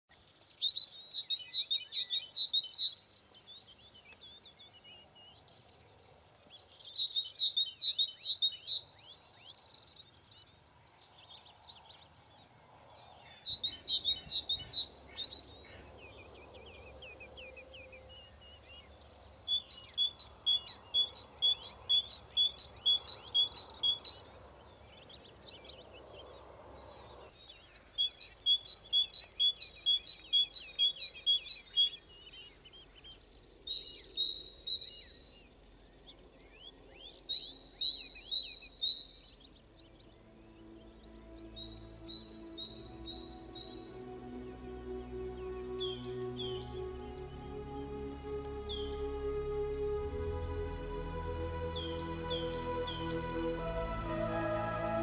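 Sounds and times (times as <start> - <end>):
songbirds singing: 0.0 - 55.0
repeated two-note bird calls: 39.9 - 55.0.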